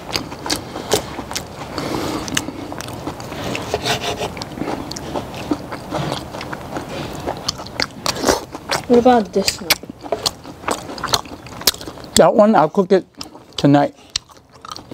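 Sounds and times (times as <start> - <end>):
chewing: 0.0 - 14.9
knife scraping on wooden board: 3.3 - 4.4.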